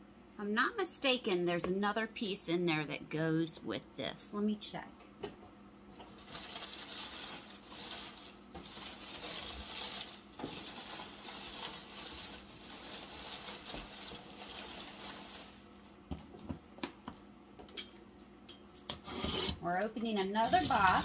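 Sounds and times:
packing paper rustling: 6.0s - 15.9s.

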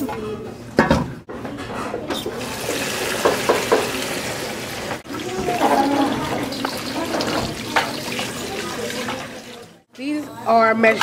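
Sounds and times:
tap water splashing on vegetables: 2.7s - 4.0s.

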